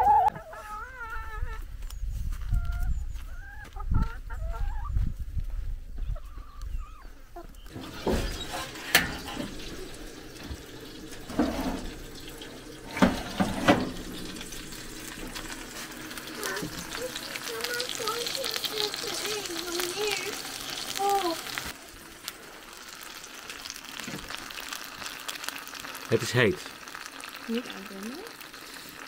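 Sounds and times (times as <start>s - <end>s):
chickens clucking: 0.0s - 5.2s, 5.9s - 21.8s.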